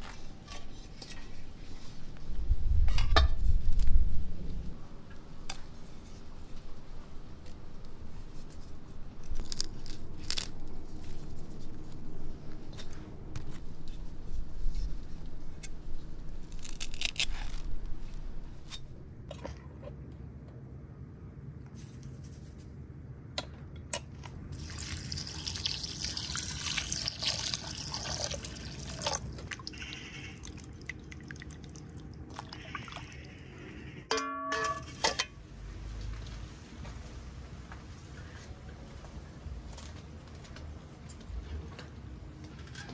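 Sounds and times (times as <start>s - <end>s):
knife cutting herb stems: 16.4s - 18.8s
short ringing: 34.1s - 35.0s.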